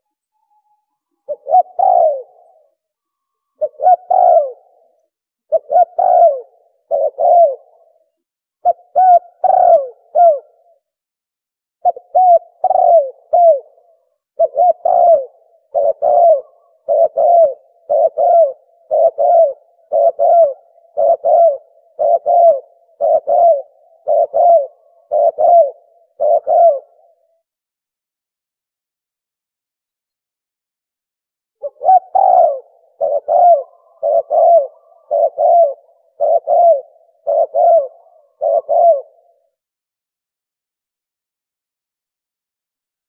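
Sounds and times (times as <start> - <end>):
dove cooing: 1.2 - 2.8, 3.5 - 10.8, 11.8 - 27.4, 31.6 - 39.6.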